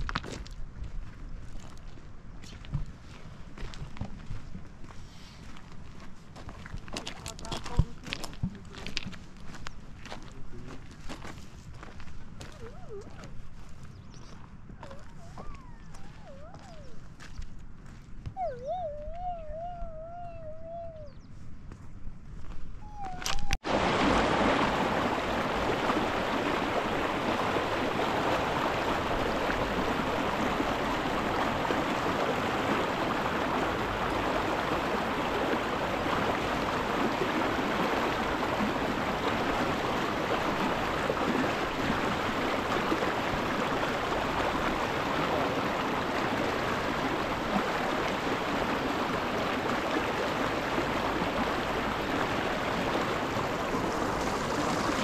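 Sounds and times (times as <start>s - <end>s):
rushing river water: 23.6s - 55.0s.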